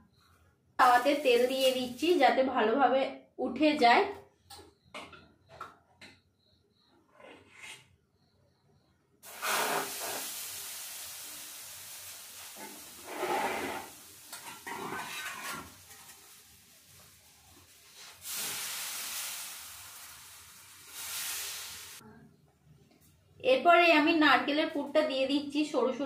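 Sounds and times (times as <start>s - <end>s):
batter sizzling in oil: 0.8s - 2.2s, 9.2s - 22.0s.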